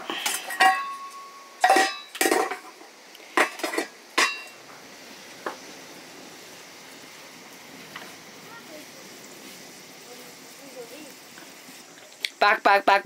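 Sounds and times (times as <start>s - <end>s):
metal kitchenware clanking: 0.0s - 2.8s, 3.4s - 4.6s.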